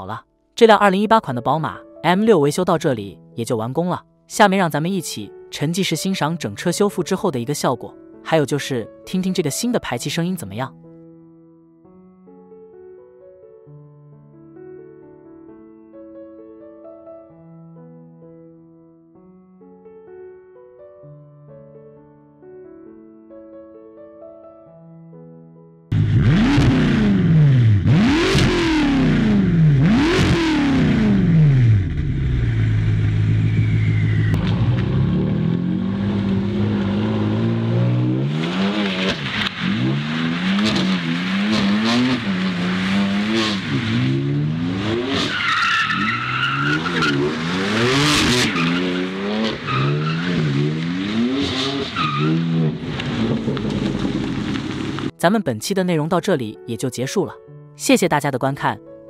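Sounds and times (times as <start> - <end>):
car engine revving and idling: 25.9 - 55.1
brief high squeal: 33.4 - 34.4.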